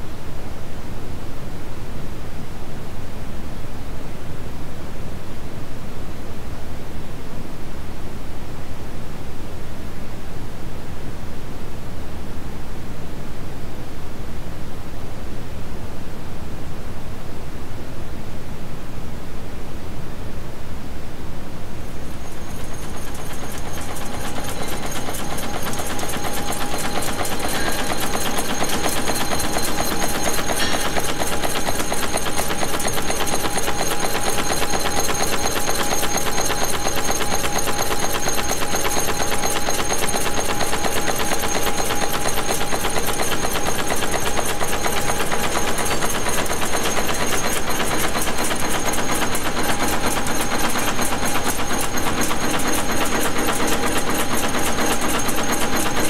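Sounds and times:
steady machine hum: 0:21.6 - 0:56.0
nail machine clattering: 0:22.2 - 0:56.0.

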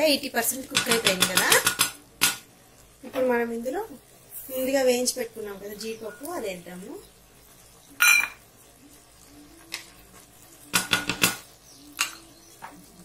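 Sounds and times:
kitchen utensils clinking: 0:08.0 - 0:08.4.

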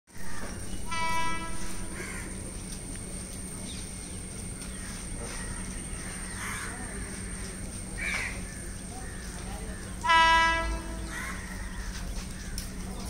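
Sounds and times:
train horn: 0:00.7 - 0:02.4, 0:10.0 - 0:11.9
crow cawing: 0:01.8 - 0:02.4, 0:04.7 - 0:10.0, 0:10.7 - 0:12.7.

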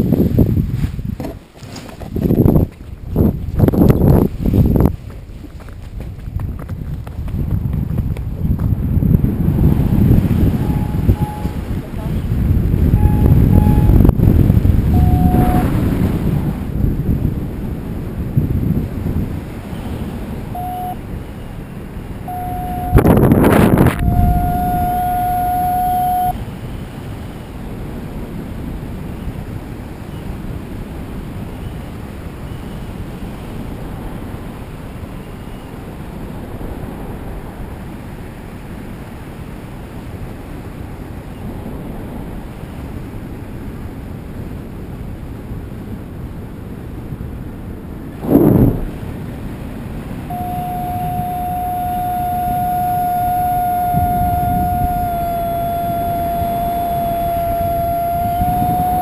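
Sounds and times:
wind rushing over microphone: 0:00.0 - 0:59.0
steady electronic tone: 0:10.4 - 0:11.7, 0:13.0 - 0:14.2, 0:14.9 - 0:16.0, 0:20.5 - 0:21.0, 0:22.2 - 0:26.4, 0:50.3 - 0:59.0.

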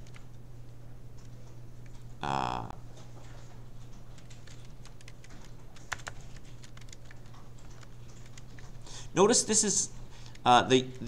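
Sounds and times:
typing on computer keyboard: 0:00.0 - 0:00.3, 0:03.8 - 0:08.9
low steady hum: 0:00.0 - 0:11.0.

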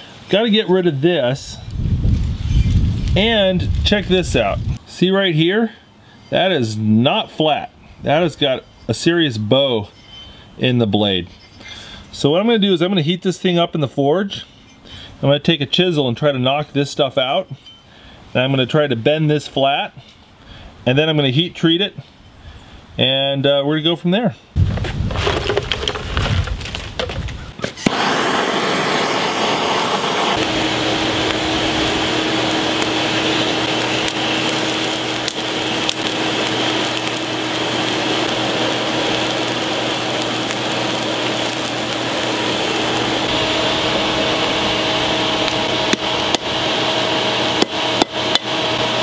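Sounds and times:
fire crackling: 0:01.6 - 0:05.0, 0:24.6 - 0:49.0
forge blower rushing hiss: 0:27.8 - 0:49.0.

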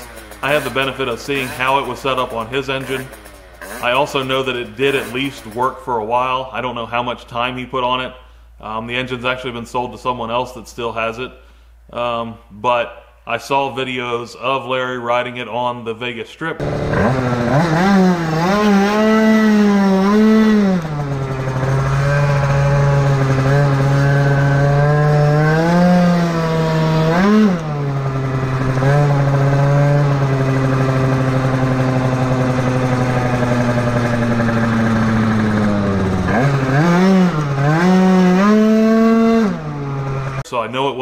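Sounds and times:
scooter two-stroke engine revving: 0:00.0 - 0:05.7, 0:16.6 - 0:40.4.

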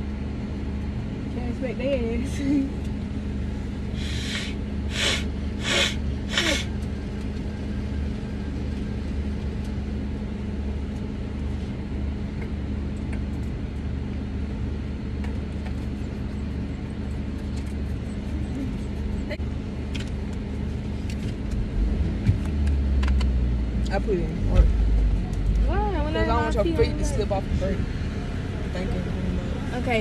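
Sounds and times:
car engine idling: 0:00.0 - 0:30.0
short bursts of hiss: 0:04.0 - 0:06.7.

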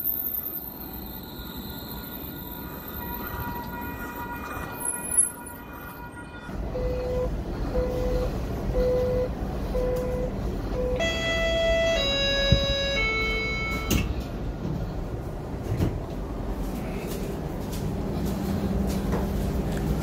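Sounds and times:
light rail train humming: 0:00.0 - 0:20.0
door-closing warning beeps: 0:06.8 - 0:14.2.

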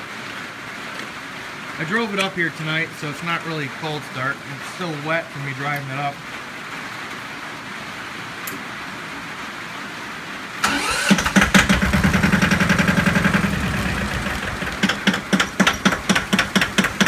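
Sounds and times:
diesel tractor engine running: 0:10.6 - 0:17.0
engine starter cranking: 0:10.6 - 0:17.0.

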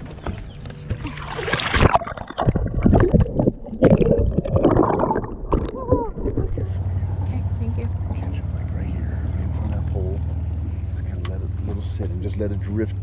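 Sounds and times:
water splashing: 0:01.0 - 0:07.2
muffled underwater gurgling: 0:01.0 - 0:07.3.

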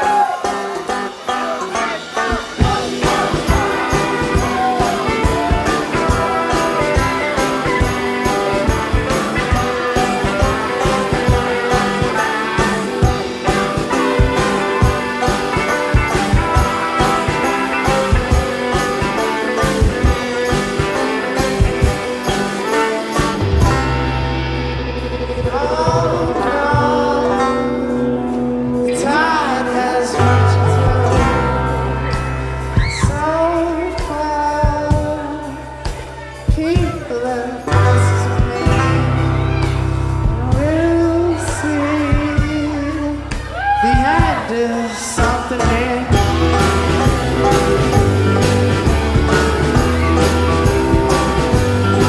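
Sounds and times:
person singing: 0:00.0 - 0:24.2, 0:25.2 - 0:52.0
bass guitar: 0:00.0 - 0:52.0
drums: 0:00.0 - 0:52.0
electric guitar: 0:00.0 - 0:52.0
live band playing: 0:00.0 - 0:52.0.

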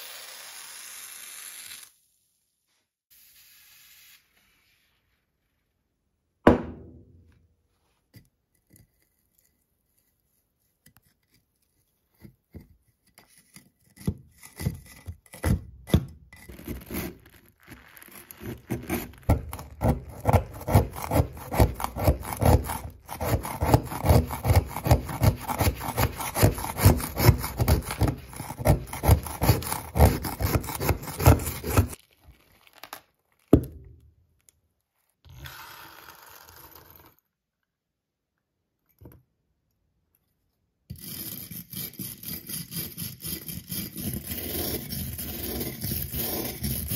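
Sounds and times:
sharp knock: 0:06.4 - 0:07.2.

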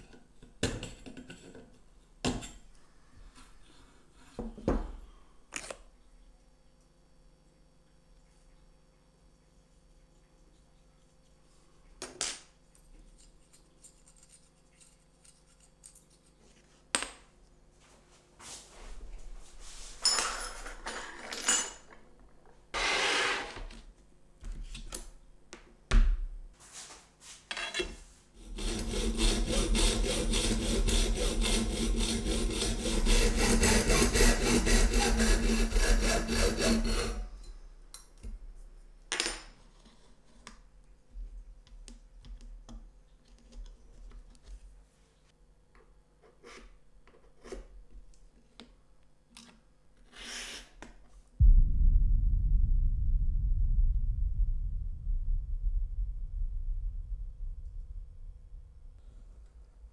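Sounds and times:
jigsaw running: 0:22.8 - 0:23.5, 0:28.4 - 0:37.1.

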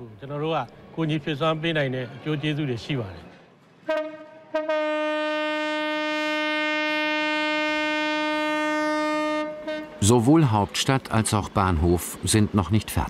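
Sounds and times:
diesel locomotive horn: 0:03.8 - 0:10.3.

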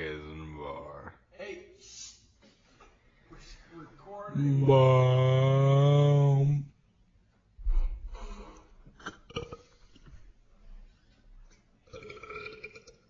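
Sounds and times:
deep drawn-out vocal sound: 0:04.4 - 0:06.7.

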